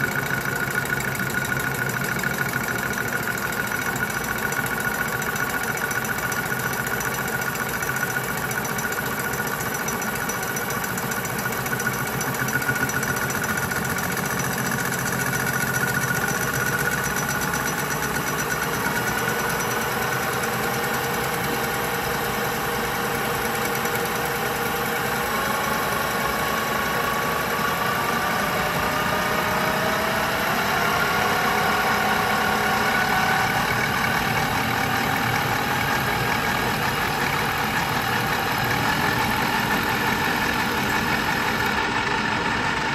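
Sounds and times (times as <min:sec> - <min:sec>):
lathe running: 0:00.0 - 0:42.9
cutting whine rising in pitch: 0:24.2 - 0:42.9.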